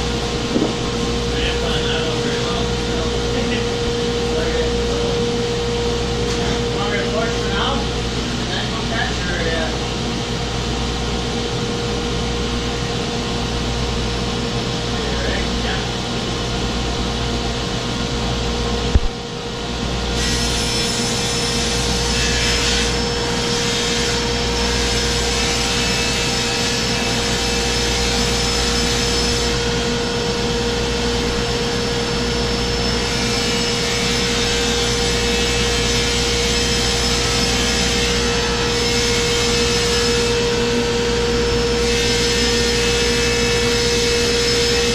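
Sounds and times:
table saw cutting plywood: 20.1 - 44.9.

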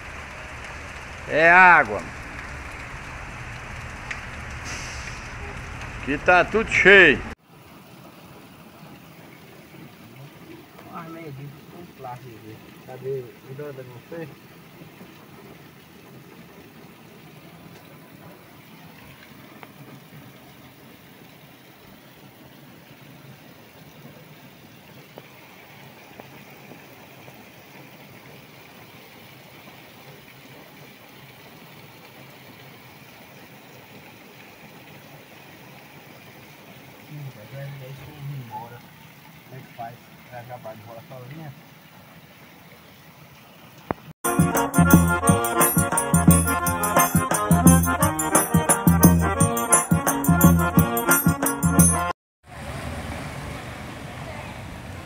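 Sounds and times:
heavy rain falling: 0.0 - 28.4, 29.2 - 41.8
water splashing onto stone pavement: 0.0 - 44.2
outdoor noise hiss: 0.0 - 47.5, 52.5 - 55.0
music with steady beat: 44.2 - 52.1.

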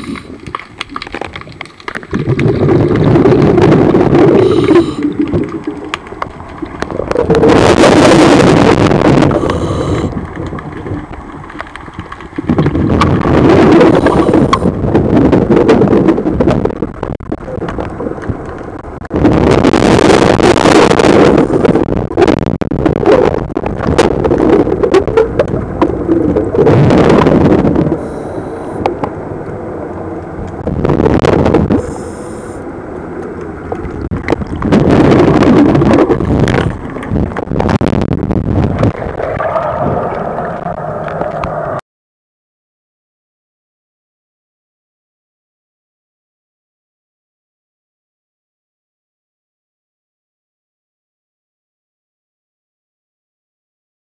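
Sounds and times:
underwater bubbles rushing: 0.0 - 41.8.

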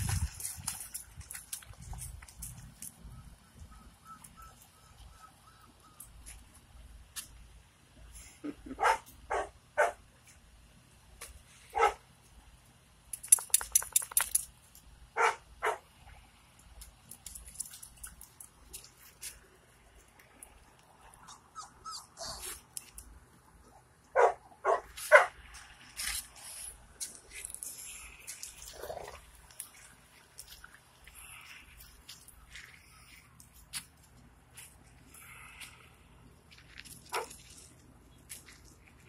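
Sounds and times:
puppy yipping and barking: 21.2 - 22.6, 24.2 - 25.3.

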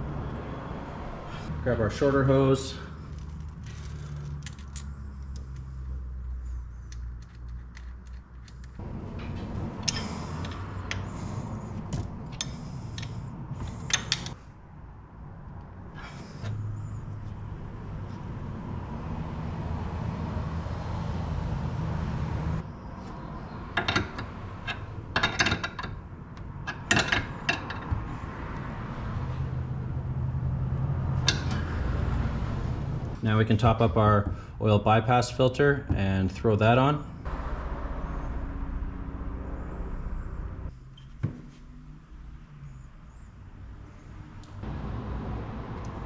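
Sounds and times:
metal fittings and hose clicking: 3.1 - 8.8, 9.8 - 11.3, 11.9 - 14.4
steady low hum: 37.1 - 43.9.

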